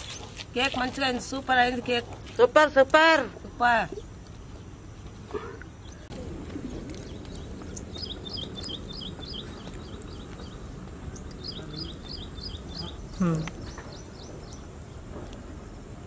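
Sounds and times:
small bird chirping: 6.9s - 15.0s.

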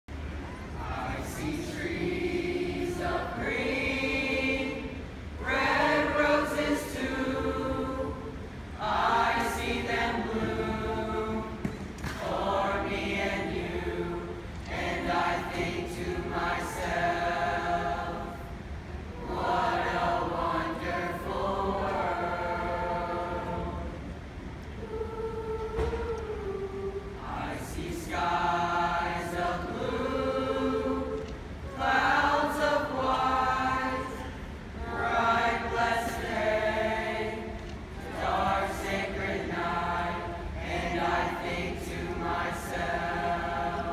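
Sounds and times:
mixed chorus singing: 0.5s - 43.9s.

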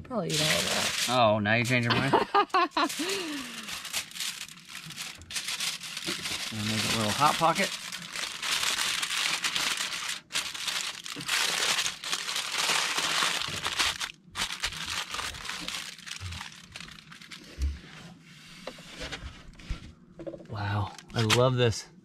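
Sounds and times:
aluminium foil crinkling: 0.3s - 1.9s, 2.5s - 17.7s.

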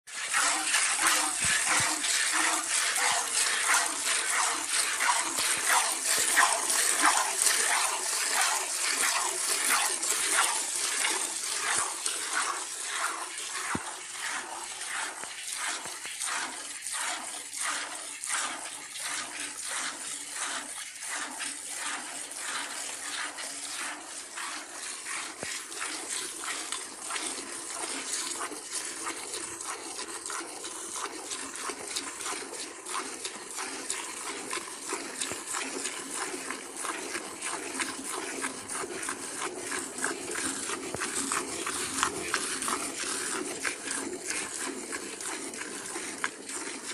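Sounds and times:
milk squirting into a pail: 0.1s - 46.9s.

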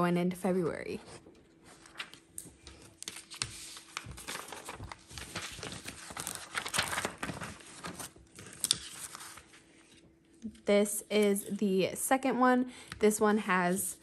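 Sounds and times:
paper rustling and crinkling: 1.0s - 10.2s.

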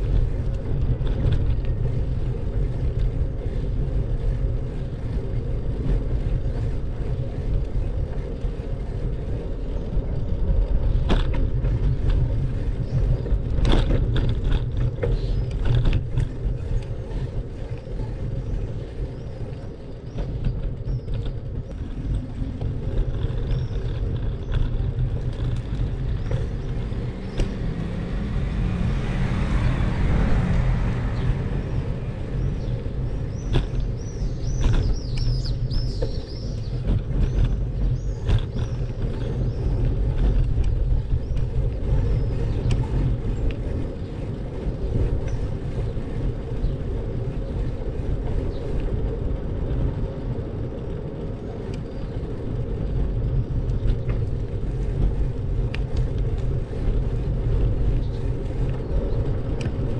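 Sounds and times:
wind and road noise: 0.0s - 59.9s.

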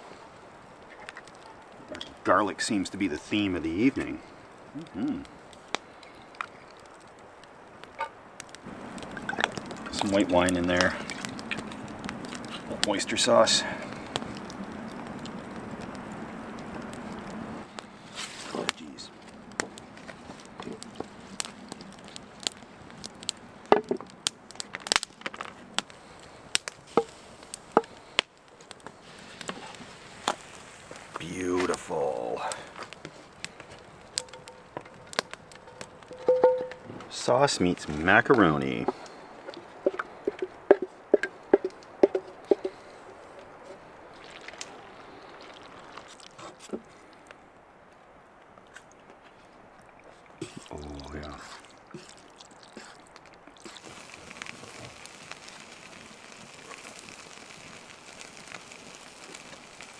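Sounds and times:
wood fire crackling and popping: 0.0s - 59.9s
wooden spoon knocking on metal pot: 36.1s - 36.8s.

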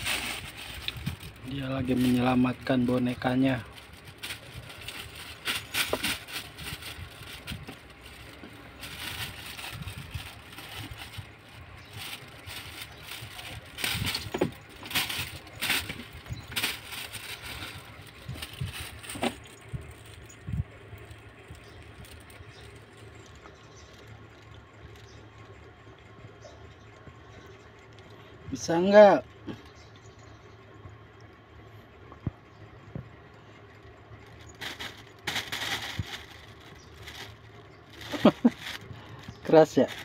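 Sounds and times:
plastic bag rustling: 0.0s - 25.1s, 34.2s - 40.0s
faint steady hum: 0.0s - 40.0s.

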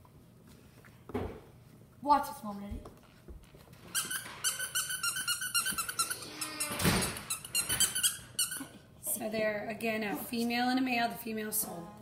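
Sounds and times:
squeaky dog toy squeaking: 3.9s - 8.9s.

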